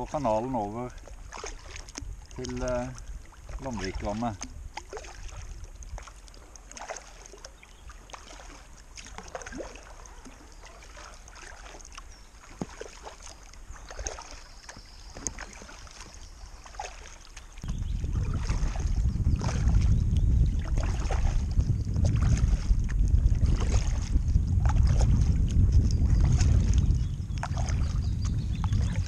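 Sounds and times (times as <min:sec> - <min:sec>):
wind rumble on microphone: 0:00.0 - 0:06.5, 0:17.5 - 0:29.0
paddle splashes: 0:00.0 - 0:29.0
water dripping off paddle: 0:00.1 - 0:21.4.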